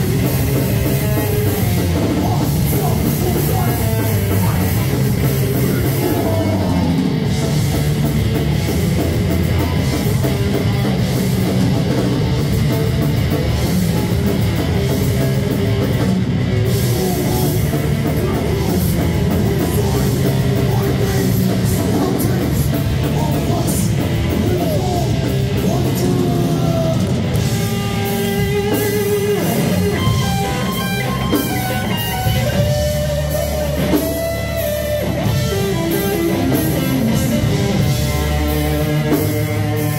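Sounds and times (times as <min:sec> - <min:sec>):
heavy metal band playing: 0:00.0 - 0:39.9
held guitar notes: 0:27.0 - 0:39.9.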